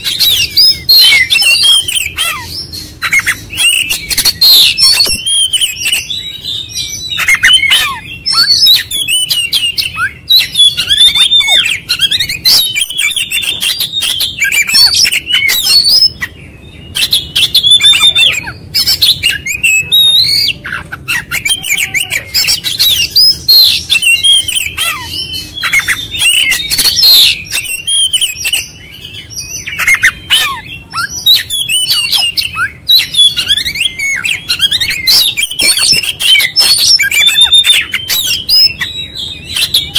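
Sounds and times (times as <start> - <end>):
bird singing whistles and chatters: 0.0 - 39.9.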